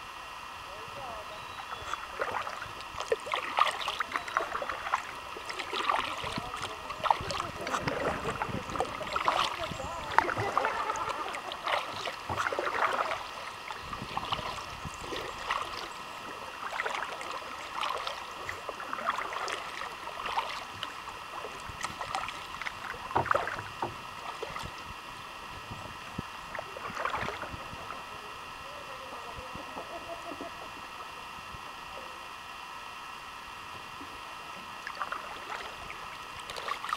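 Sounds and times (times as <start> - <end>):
paddle splashing in water: 1.6 - 25.0, 26.4 - 28.0, 34.8 - 36.9.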